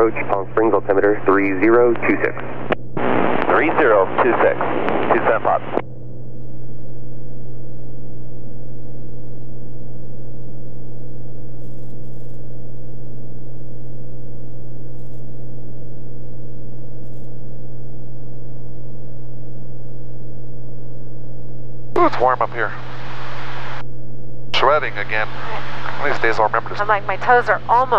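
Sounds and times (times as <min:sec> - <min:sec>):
airplane engine and propeller drone: 0:00.0 - 0:14.0, 0:22.0 - 0:23.8, 0:24.6 - 0:27.9.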